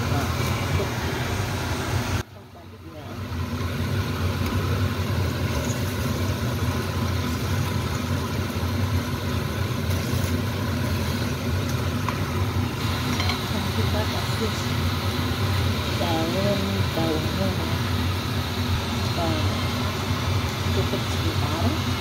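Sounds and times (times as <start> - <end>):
fish sizzling in oil: 3.1 - 22.0
spatula turning food in wok: 4.2 - 15.0.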